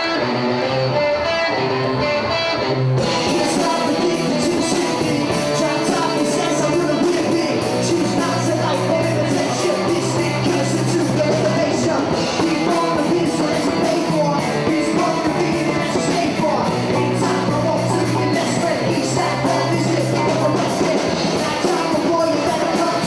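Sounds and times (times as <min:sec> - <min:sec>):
electric guitar: 0:00.0 - 0:23.0
person singing: 0:03.0 - 0:23.0
steady drum beat: 0:03.0 - 0:23.0.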